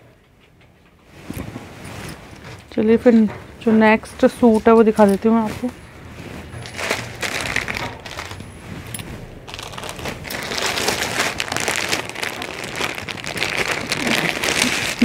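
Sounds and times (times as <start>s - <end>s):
plastic packaging crinkling: 6.6s - 15.0s.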